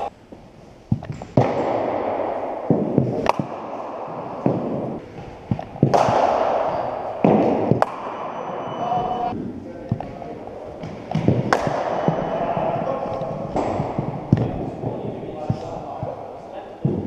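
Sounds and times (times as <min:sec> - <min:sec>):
background din of sports hall: 0:00.0 - 0:17.0
balls thudding into floor and netting: 0:00.9 - 0:17.0
cricket bat striking ball: 0:01.4 - 0:08.5, 0:10.8 - 0:12.8, 0:13.4 - 0:16.2.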